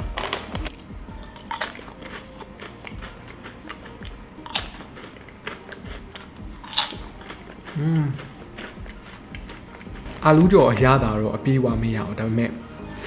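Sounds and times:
potato chips crunching: 0.0 - 10.5
person humming: 7.2 - 9.0.

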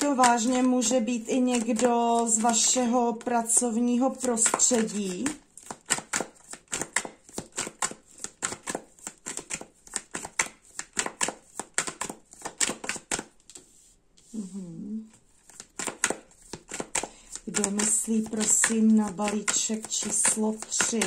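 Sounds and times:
cards being shuffled: 0.0 - 14.4, 15.1 - 21.0
person humming: 14.3 - 15.1.

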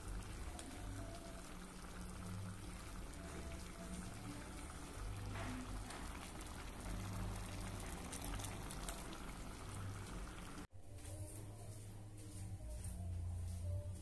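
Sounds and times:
broth bubbling and popping: 0.0 - 10.7.

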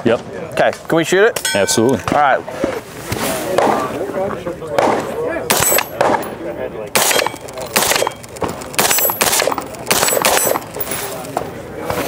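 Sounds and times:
suppressed rifle shots: 4.8 - 6.3, 7.0 - 10.8.

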